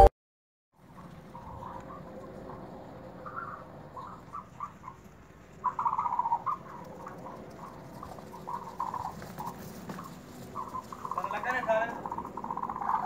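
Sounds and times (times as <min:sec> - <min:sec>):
ostrich chicks chirping: 0:03.2 - 0:13.0.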